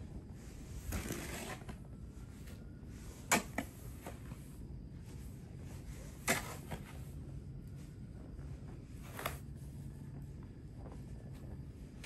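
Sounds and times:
snow shovel scraping snow: 0:00.5 - 0:01.7.

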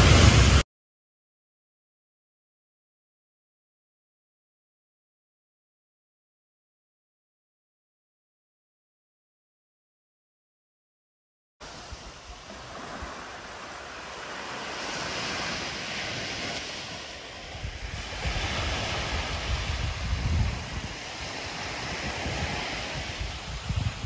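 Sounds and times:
sea waves washing ashore: 0:00.0 - 0:00.6, 0:11.6 - 0:24.0
wind buffeting microphone: 0:14.2 - 0:24.0.

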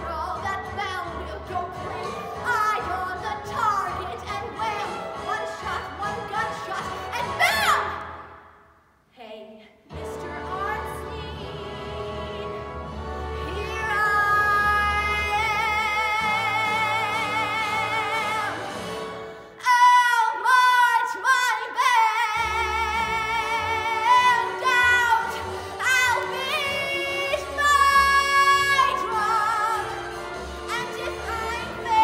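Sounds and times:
woman singing show tune: 0:13.4 - 0:18.7, 0:19.6 - 0:32.0.

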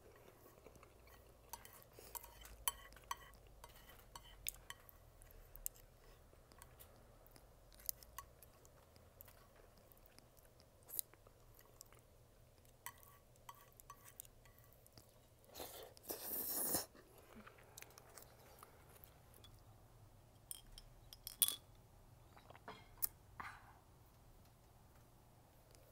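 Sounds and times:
slurping and chewing: 0:00.0 - 0:19.2.

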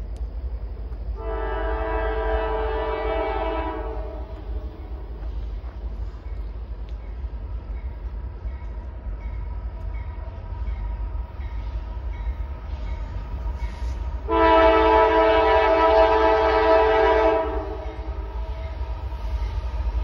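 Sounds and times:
locomotive air horn blast: 0:01.2 - 0:04.8, 0:13.9 - 0:18.5.

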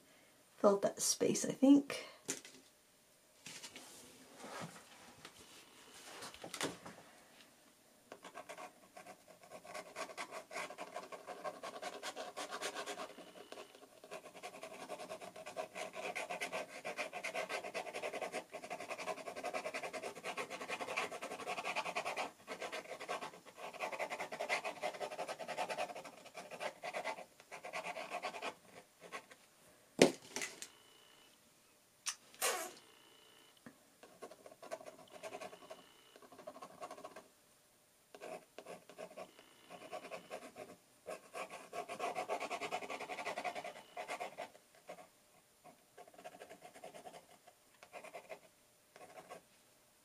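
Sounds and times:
pen nib scratching paper: 0:08.2 - 0:29.4, 0:34.1 - 0:37.2, 0:38.2 - 0:45.0, 0:46.0 - 0:48.4, 0:49.0 - 0:49.4.

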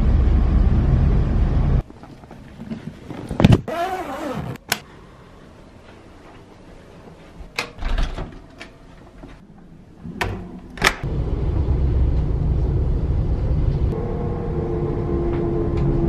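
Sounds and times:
train rumbling inside carriage: 0:00.0 - 0:01.8, 0:11.1 - 0:16.0
door shutting: 0:07.6 - 0:08.5.

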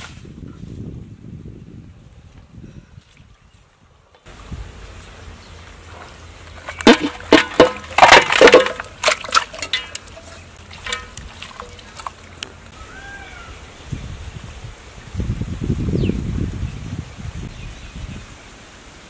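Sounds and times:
pot lid clanking: 0:06.8 - 0:11.2.

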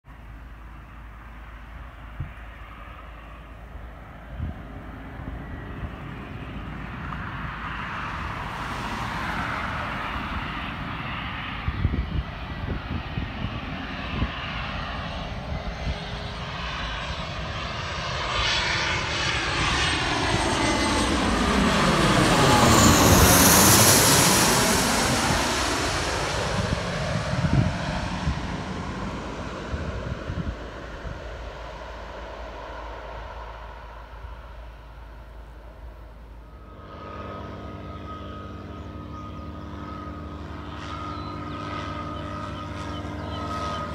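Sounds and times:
jet passing overhead: 0:00.1 - 0:43.9.

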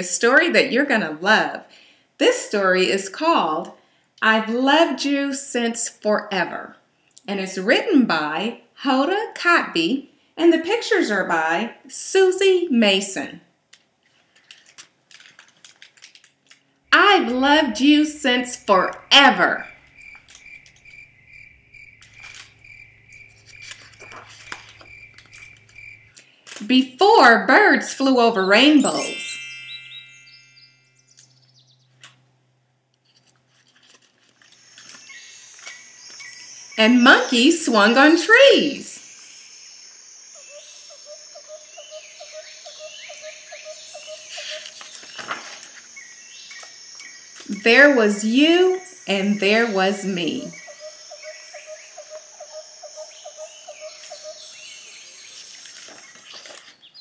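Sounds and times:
book page turning: 0:14.0 - 0:16.6, 0:22.0 - 0:22.6, 0:23.2 - 0:25.8, 0:33.0 - 0:36.3, 0:44.3 - 0:45.9, 0:55.2 - 0:57.0
insect trill: 0:19.0 - 0:26.2, 0:34.5 - 0:56.5
faint high chirping: 0:28.4 - 0:32.0, 0:38.6 - 0:45.3, 0:45.9 - 0:57.0.

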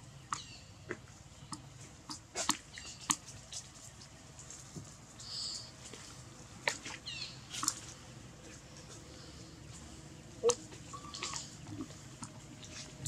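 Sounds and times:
high chirps: 0:10.4 - 0:11.6.

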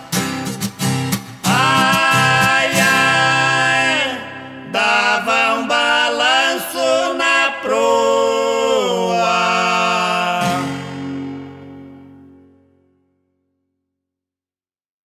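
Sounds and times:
two men singing a duet: 0:01.4 - 0:11.3.

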